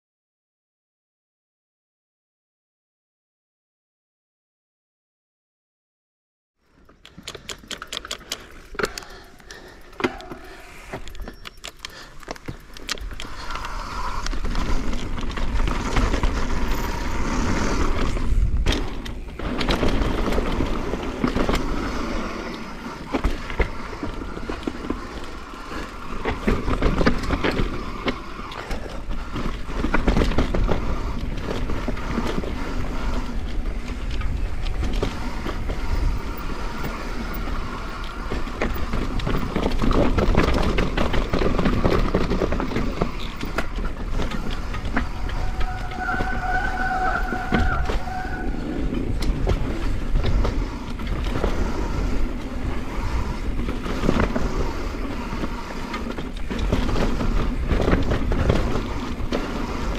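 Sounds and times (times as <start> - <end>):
bike tyres rolling over dirt: 6.6 - 59.9
bike rattling and knocking: 6.7 - 59.9
wind noise on microphone: 12.7 - 59.9.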